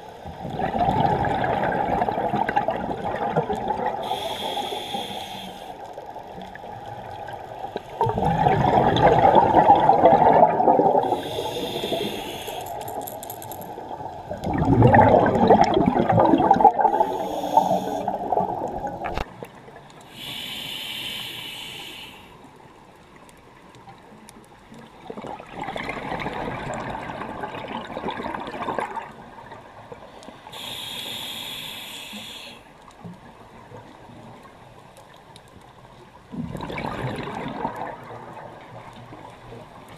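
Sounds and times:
exhaled bubbles rushing: 0.2s - 4.1s, 6.5s - 12.0s, 13.6s - 19.3s, 25.2s - 29.6s, 36.3s - 38.7s
regulator inhalation hiss: 4.0s - 5.9s, 11.0s - 13.7s, 16.9s - 18.2s, 20.1s - 22.4s, 30.5s - 32.7s.

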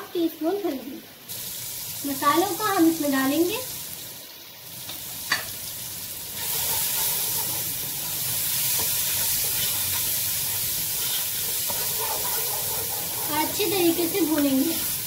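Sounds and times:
food sizzling in hot oil: 0.1s - 15.0s
spatula stirring in pot: 6.3s - 15.0s.

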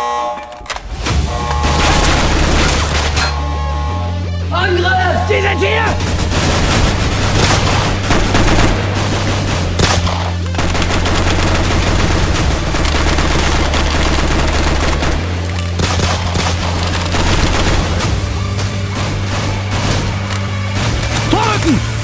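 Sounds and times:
steady low drone: 0.0s - 4.6s
automatic rifle fire: 1.6s - 3.2s, 6.0s - 18.3s.

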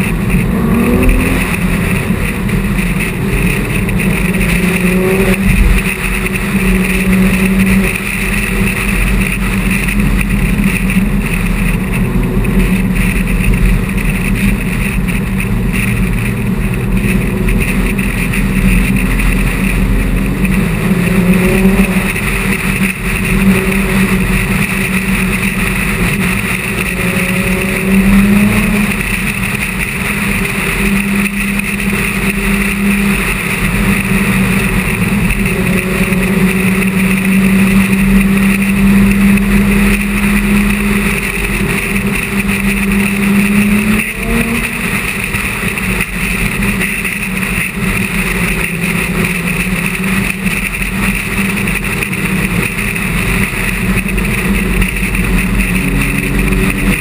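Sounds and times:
car engine running: 0.0s - 57.0s
road and wind noise: 0.0s - 57.0s.

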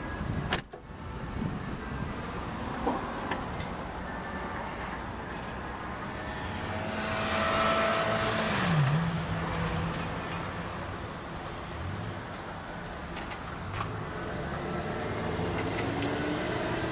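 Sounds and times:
vehicle passing: 4.2s - 16.9s.

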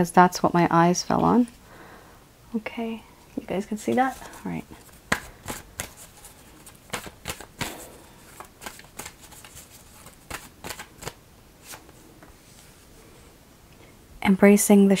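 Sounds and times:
cards snapping and flicking: 5.1s - 11.9s.

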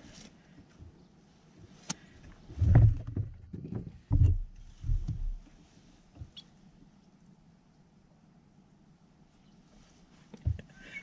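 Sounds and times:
low heavy thumps in kayak: 2.5s - 5.5s.

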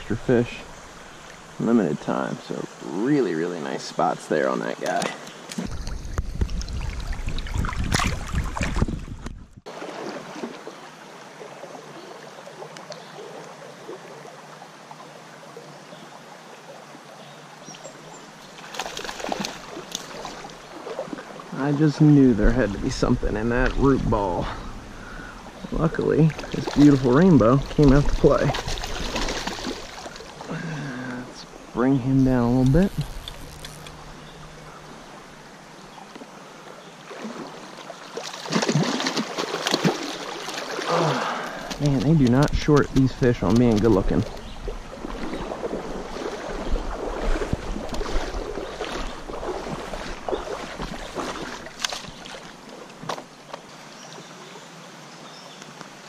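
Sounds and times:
creek water running: 0.0s - 56.0s
splashes and clicks: 4.8s - 10.6s, 18.5s - 21.3s, 26.3s - 31.2s, 37.1s - 53.3s.

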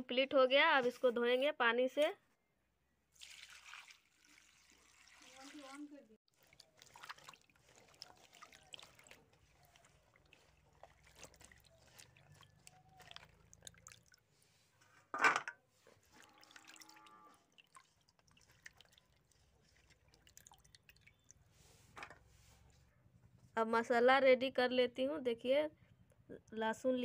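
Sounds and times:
water dripping: 3.2s - 14.3s, 16.0s - 21.5s
hands sloshing vegetables in water: 3.2s - 14.8s, 15.8s - 22.6s.

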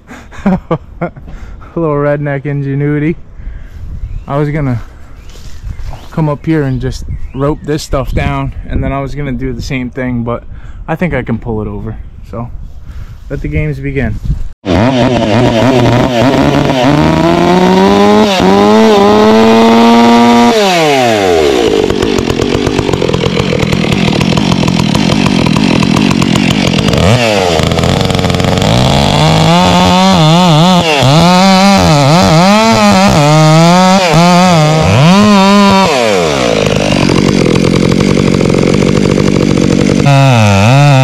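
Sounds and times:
chainsaw cutting wood: 14.6s - 41.0s.

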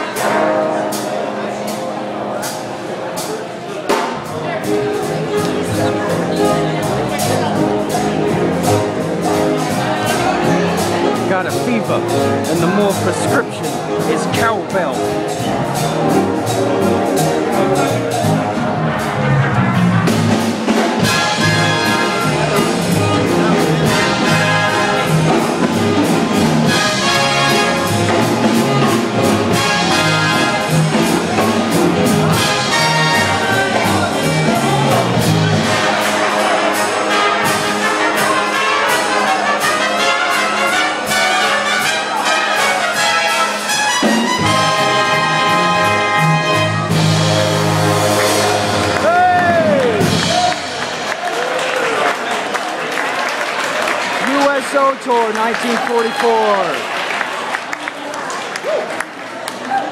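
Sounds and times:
big band playing jazz: 0.0s - 58.1s
trumpets and trombones: 4.6s - 50.9s.

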